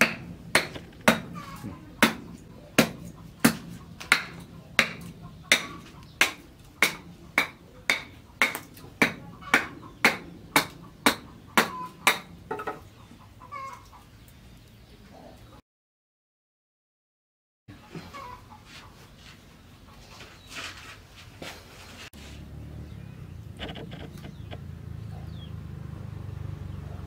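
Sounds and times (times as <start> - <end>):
chicken clucking: 1.2 - 4.0, 9.1 - 10.1, 10.8 - 15.6, 17.7 - 20.6.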